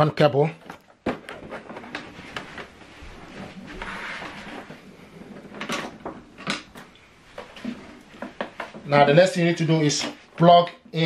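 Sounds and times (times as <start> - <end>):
tv scraping on tabletop: 3.6 - 5.7.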